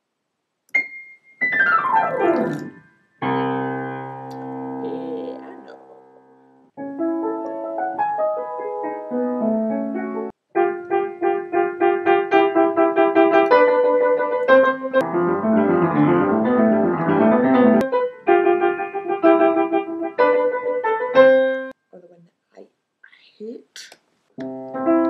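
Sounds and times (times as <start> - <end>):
piano playing: 0.8 - 21.8, 24.4 - 25.0.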